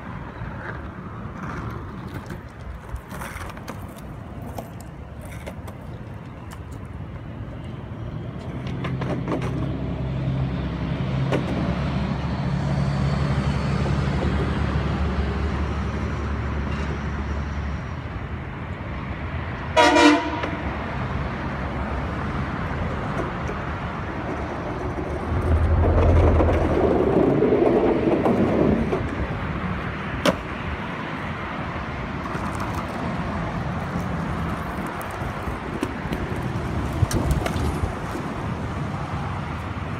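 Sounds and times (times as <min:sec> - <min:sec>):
passing vehicles engine rumble: 0:00.0 - 0:39.9
vehicle horn toot: 0:19.8 - 0:20.6
vehicle passing loudly: 0:24.7 - 0:28.9.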